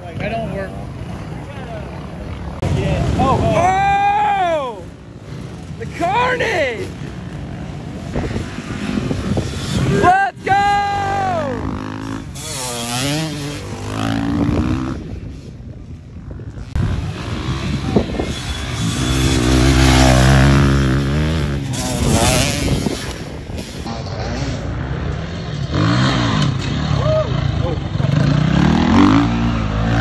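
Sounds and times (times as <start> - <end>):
dirt bike engines revving: 0.0 - 30.0.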